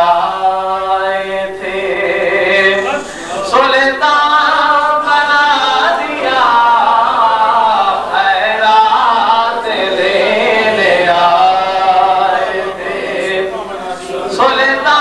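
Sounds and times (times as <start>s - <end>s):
man singing unaccompanied: 0.0s - 15.0s
short breath: 2.9s - 3.4s.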